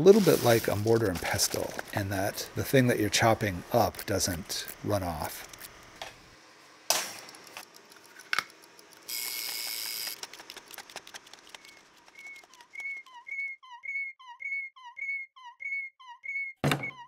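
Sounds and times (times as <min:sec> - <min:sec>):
whistle-like chirps: 0:11.6 - 0:17.0.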